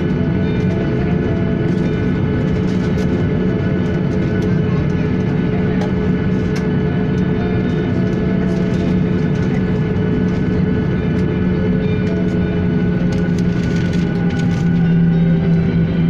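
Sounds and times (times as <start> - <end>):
jet engines humming and whining: 0.0 - 16.0.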